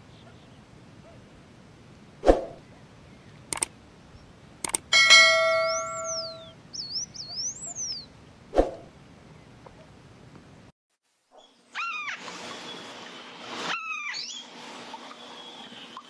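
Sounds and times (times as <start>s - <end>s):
mouse clicks: 3.5s - 3.7s, 4.6s - 4.8s
notification bell ding: 5.0s - 6.5s
high whistled notes: 5.4s - 6.5s.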